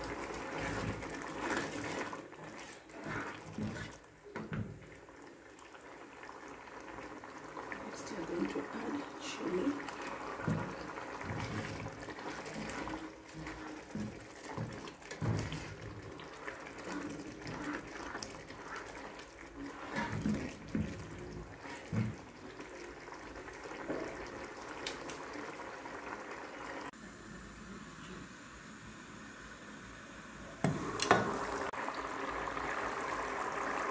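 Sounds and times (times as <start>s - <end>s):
spatula stirring and knocking pot: 0.0s - 5.2s, 6.8s - 25.2s
curry bubbling in a pot: 0.0s - 27.0s, 30.6s - 33.9s.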